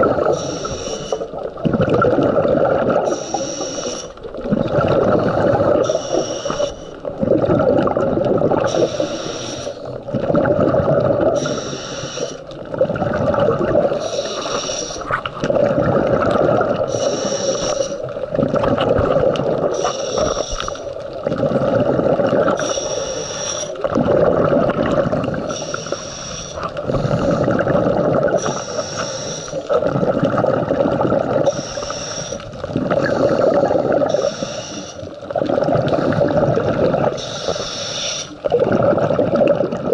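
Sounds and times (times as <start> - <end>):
exhaled bubbles rushing: 0.0 - 3.4, 4.1 - 9.1, 9.8 - 11.8, 12.4 - 34.4, 35.0 - 37.6, 38.4 - 39.9
regulator hissing inhale: 0.1 - 1.4, 3.0 - 4.2, 5.0 - 7.0, 8.7 - 10.0, 11.4 - 12.5, 13.9 - 15.1, 16.8 - 18.1, 19.7 - 21.0, 22.6 - 23.9, 25.3 - 27.6, 28.4 - 29.8, 31.4 - 35.2, 37.2 - 38.5.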